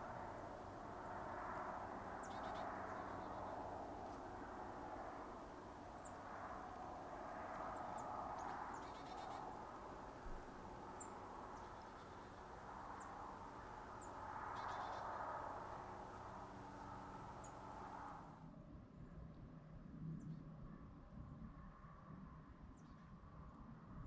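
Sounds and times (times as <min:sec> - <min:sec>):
small birds chip calls: 0:02.2 - 0:04.3, 0:07.5 - 0:09.8, 0:10.9 - 0:18.0.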